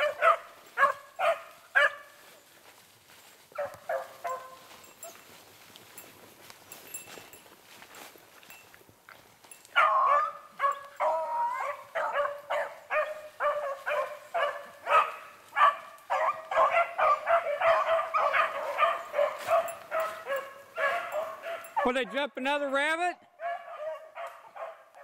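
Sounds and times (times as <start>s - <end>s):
beagles baying: 0.0s - 2.4s, 3.5s - 5.4s, 9.6s - 22.2s, 23.4s - 25.0s.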